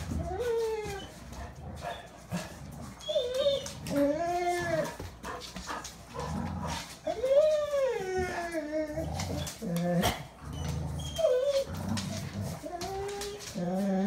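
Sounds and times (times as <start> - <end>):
dog whining: 0.0 - 5.1, 6.7 - 14.0.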